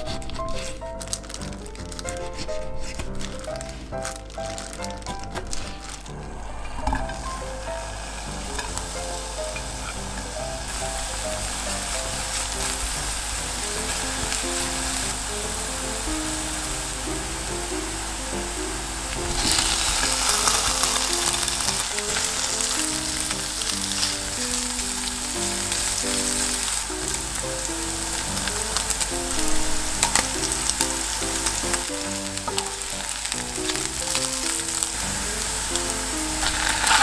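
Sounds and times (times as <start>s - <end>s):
wooden spatula scraping and clicking: 0.0s - 7.3s, 28.1s - 37.0s
background music: 0.0s - 37.0s
food sizzling in a frying pan: 2.3s - 37.0s.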